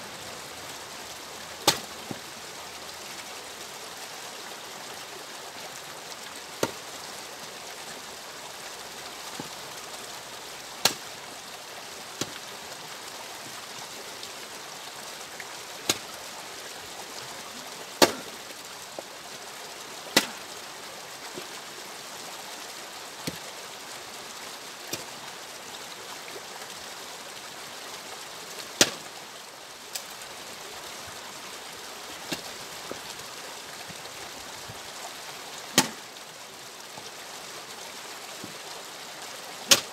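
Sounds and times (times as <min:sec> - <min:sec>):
steady rushing hiss: 0:00.0 - 0:39.9
axe splitting logs: 0:01.6 - 0:01.9, 0:10.8 - 0:11.0, 0:15.9 - 0:16.1, 0:18.0 - 0:18.3, 0:20.2 - 0:20.4, 0:28.8 - 0:29.1, 0:35.8 - 0:36.0, 0:39.7 - 0:39.9.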